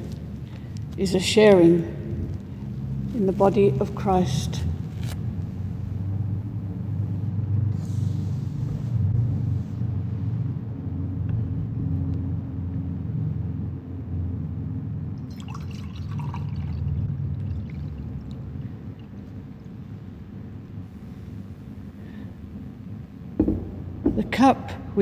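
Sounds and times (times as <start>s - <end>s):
wine pouring into a glass: 15.2s - 19.8s.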